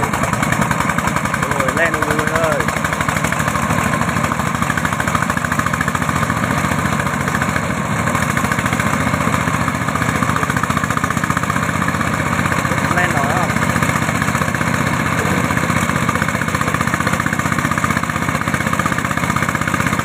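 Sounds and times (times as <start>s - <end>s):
diesel engine chugging: 0.0s - 20.0s.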